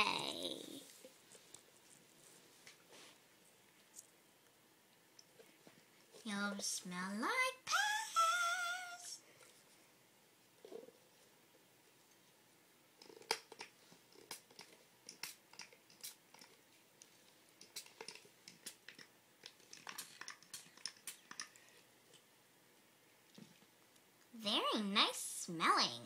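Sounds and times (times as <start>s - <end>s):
spray bottle spritzes and clicks: 15.1s - 16.3s.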